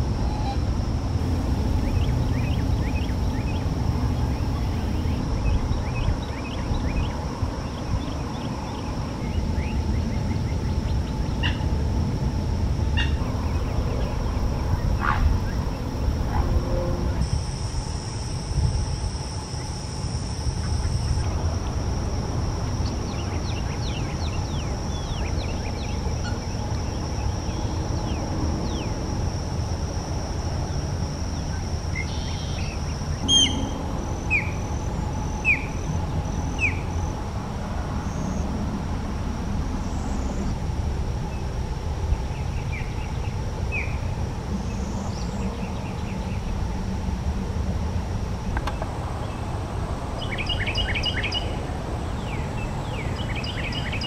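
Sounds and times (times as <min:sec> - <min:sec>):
steady high hum: 0:00.0 - 0:54.0
bird chirps and calls: 0:33.3 - 0:33.7.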